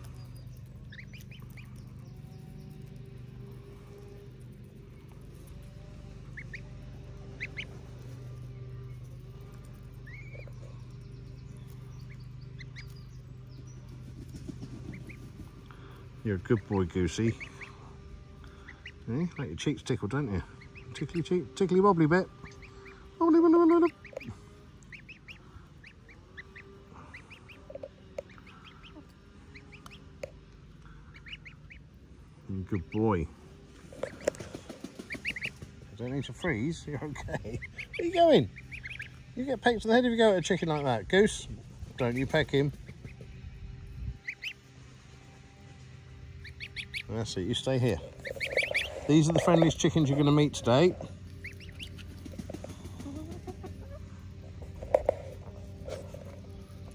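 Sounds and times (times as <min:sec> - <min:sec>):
goslings peeping: 0:00.0 - 0:56.9
steady low hum: 0:00.0 - 0:56.9.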